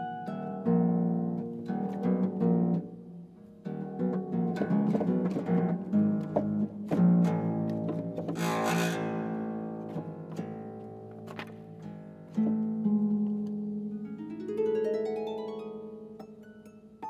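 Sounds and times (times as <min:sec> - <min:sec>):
solo harp playing: 0:00.0 - 0:17.0
sweep over harp strings: 0:00.0 - 0:17.0.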